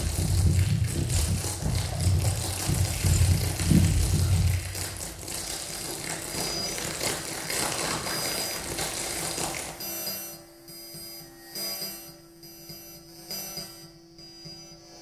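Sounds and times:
steady low tone: 0.0s - 5.3s
noisy crackling electronic music: 0.0s - 15.0s.

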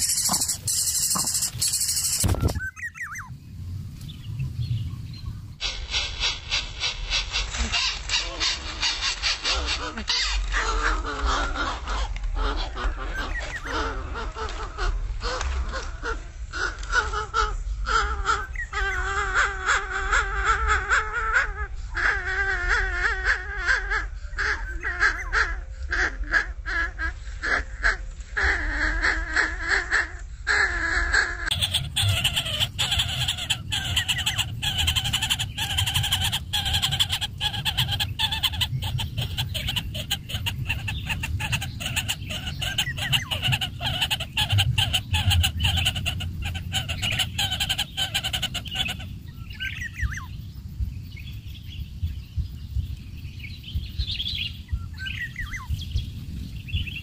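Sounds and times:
nestlings rasping begging calls: 0.0s - 3.3s, 31.5s - 50.3s
low rumble: 0.0s - 7.7s.

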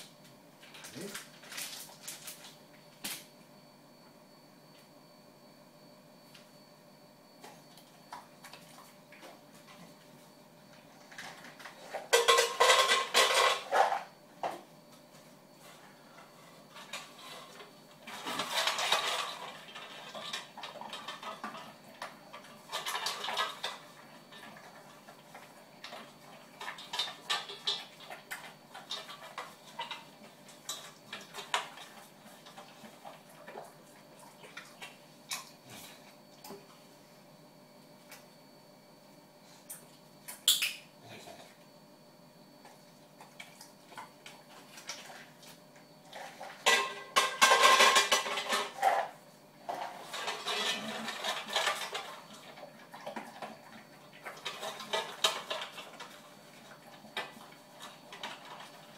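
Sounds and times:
metal dog bowl clattering: 11.2s - 14.0s, 46.1s - 49.1s, 49.7s - 52.5s.

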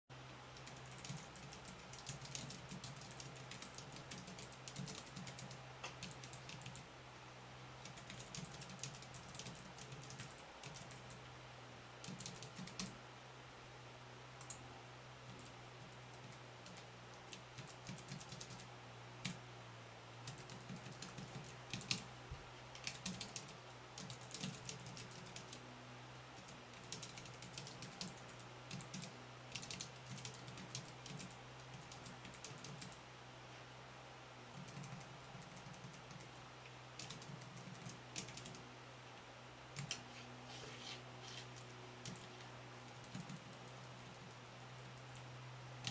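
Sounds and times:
low steady hum: 0.1s - 45.9s
keyboard keys clicking: 0.6s - 6.8s, 7.8s - 11.2s, 12.0s - 12.9s, 16.1s - 19.4s, 20.3s - 22.1s, 22.7s - 25.6s, 26.4s - 33.0s, 34.6s - 36.3s, 37.0s - 38.6s, 39.8s - 40.0s, 41.6s - 42.3s, 42.9s - 44.4s.

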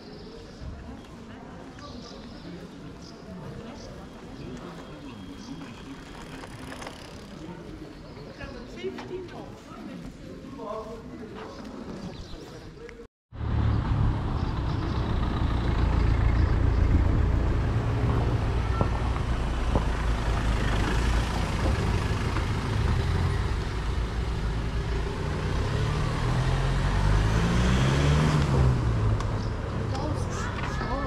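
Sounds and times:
vehicle engine humming: 13.4s - 31.0s.

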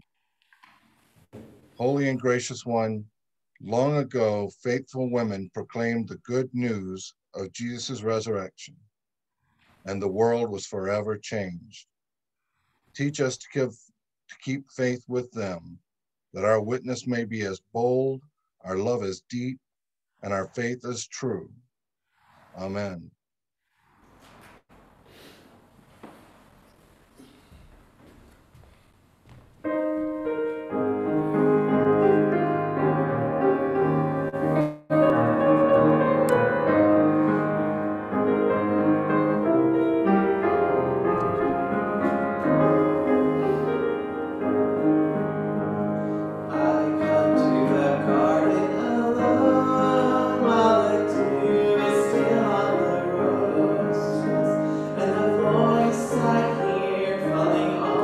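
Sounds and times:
piano music: 29.6s - 58.0s.

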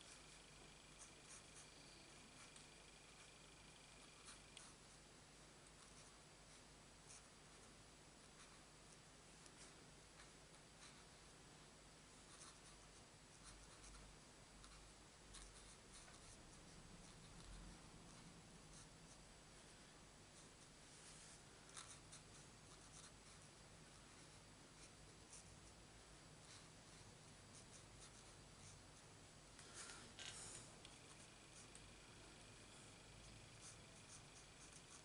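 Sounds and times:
quiet room hiss: 0.0s - 35.0s
marker nib scratching on card: 0.1s - 4.8s, 21.6s - 23.5s, 26.5s - 32.6s, 33.2s - 35.0s.

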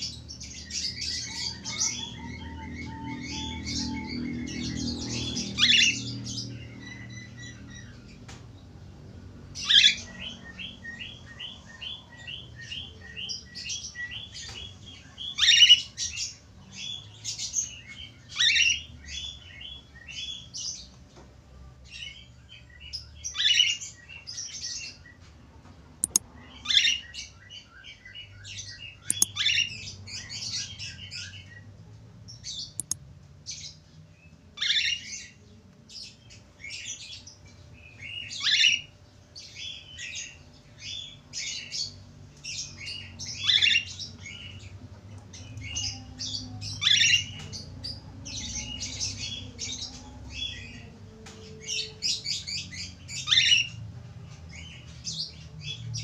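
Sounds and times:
sharp clicks: 26.0s - 26.2s, 29.1s - 29.4s, 32.8s - 33.0s.

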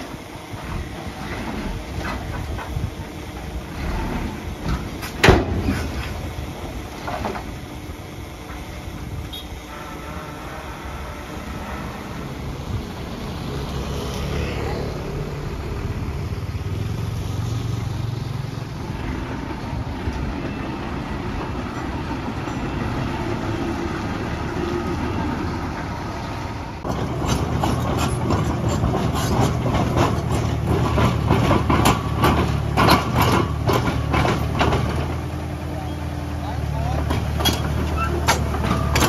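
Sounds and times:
heavy machinery diesel engine: 0.0s - 39.0s
metallic clanks and knocks: 26.8s - 35.3s, 37.0s - 39.0s.

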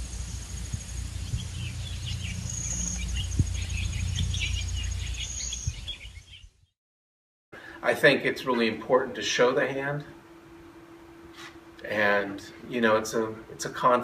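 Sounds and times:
high insect trill: 0.0s - 5.6s
low rumble: 0.0s - 5.9s
birds chirping: 0.1s - 6.7s.

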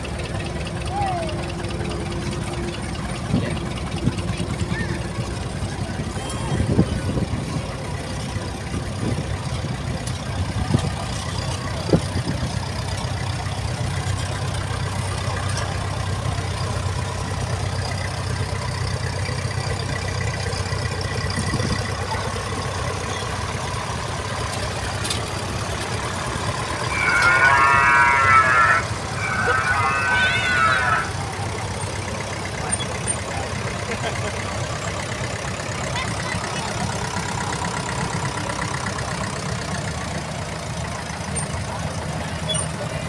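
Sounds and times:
tractor engines rumbling: 0.0s - 43.0s
wavering pitched sound: 26.6s - 31.3s.

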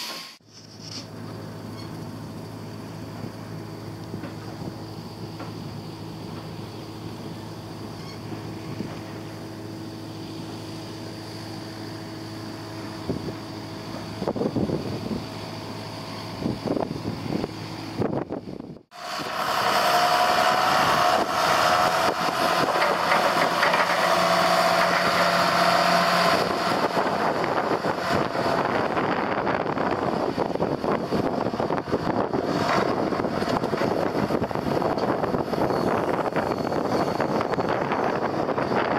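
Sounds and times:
engine whine: 0.3s - 38.9s
tractor diesel engine running: 0.4s - 38.9s
wind on microphone: 13.0s - 15.4s, 26.2s - 38.9s
knocks and rattles: 22.3s - 25.4s.

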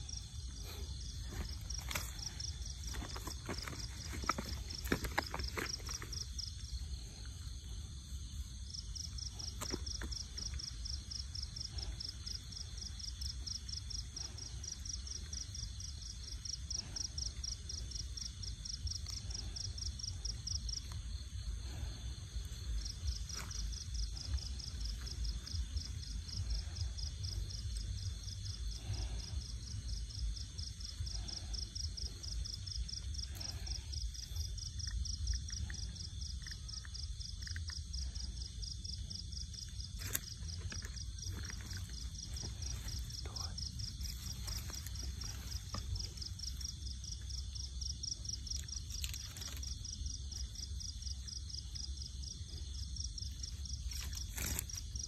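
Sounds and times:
insect trilling: 0.0s - 55.0s.

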